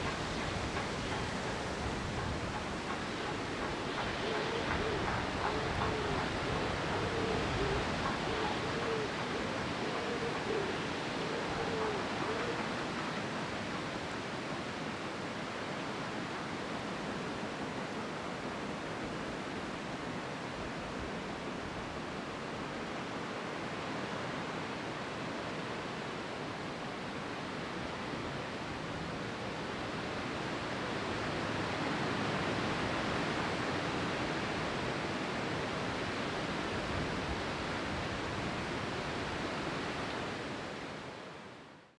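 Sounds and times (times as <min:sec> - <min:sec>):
steady rushing noise: 0:00.0 - 0:23.2.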